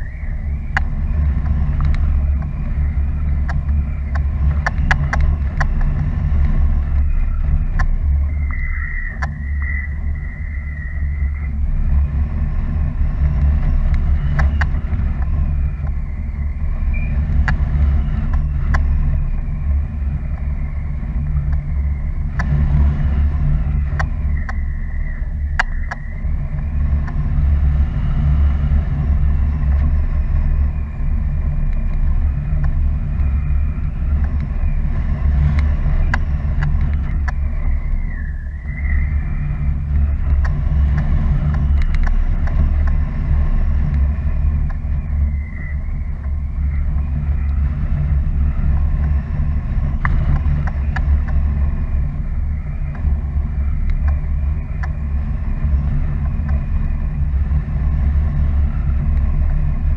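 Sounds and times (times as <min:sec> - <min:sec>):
faint high whistle: 0:00.0 - 0:00.8, 0:08.3 - 0:11.5, 0:16.1 - 0:17.2, 0:37.5 - 0:39.4
scattered clicks: 0:00.0 - 0:59.9
wind rushing over microphone: 0:00.0 - 0:59.9.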